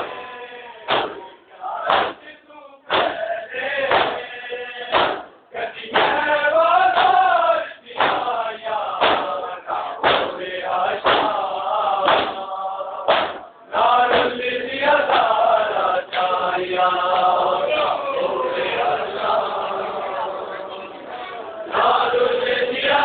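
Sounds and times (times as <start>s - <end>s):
crowd of men chanting: 0.0s - 23.0s
hand slaps on chests: 0.9s - 1.3s, 1.9s - 2.2s, 2.9s - 3.2s, 3.9s - 4.2s, 4.9s - 6.2s, 6.9s - 7.2s, 8.0s - 8.3s, 9.0s - 9.4s, 10.0s - 10.4s, 11.0s - 11.4s, 12.0s - 12.5s, 13.1s - 13.5s, 14.1s - 14.4s, 15.0s - 15.4s.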